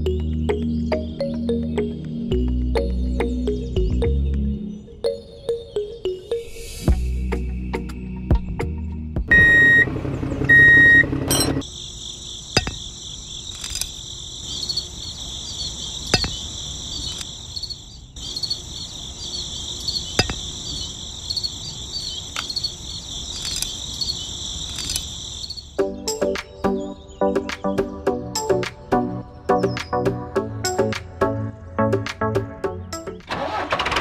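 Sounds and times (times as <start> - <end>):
crickets chirring: 11.6 - 26.8
toy parts clicking together: 13.5 - 14.0, 23.4 - 23.8, 24.7 - 25.1.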